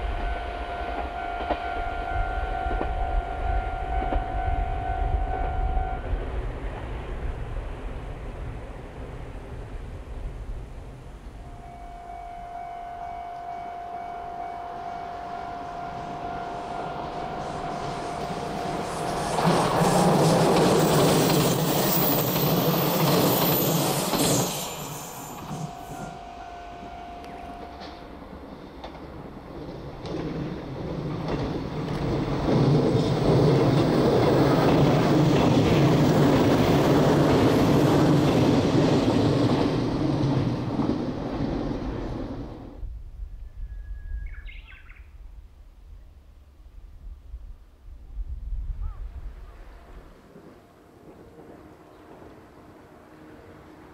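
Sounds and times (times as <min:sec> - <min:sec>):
steady high tone: 0:00.0 - 0:06.2, 0:11.4 - 0:28.5
locomotive engine passing: 0:11.4 - 0:42.8, 0:49.4 - 0:53.9.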